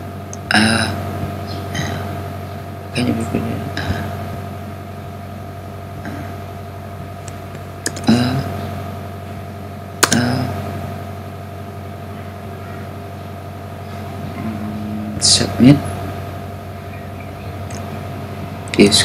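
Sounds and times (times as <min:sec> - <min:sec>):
electrical hum: 0:00.0 - 0:19.0
sharp clicks: 0:07.2 - 0:08.1, 0:10.0 - 0:10.3.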